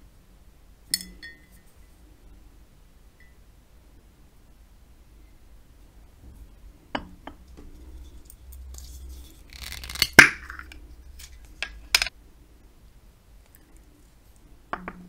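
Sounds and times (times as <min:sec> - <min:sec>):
light glass clinks: 0:01.0 - 0:01.6
metal lid grating on glass jar: 0:07.7 - 0:12.1.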